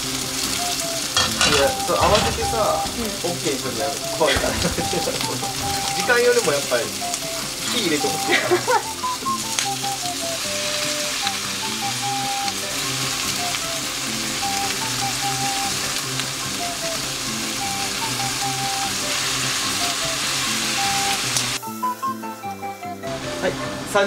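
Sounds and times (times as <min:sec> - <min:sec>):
background music: 0:00.0 - 0:24.0
food sizzling in frying pan: 0:00.0 - 0:24.0.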